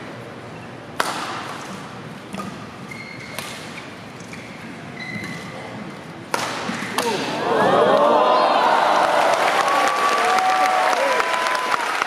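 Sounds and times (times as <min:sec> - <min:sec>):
racket striking shuttlecock: 0:01.0 - 0:02.7, 0:06.3 - 0:07.4
shoes squeaking on court: 0:01.6 - 0:05.8.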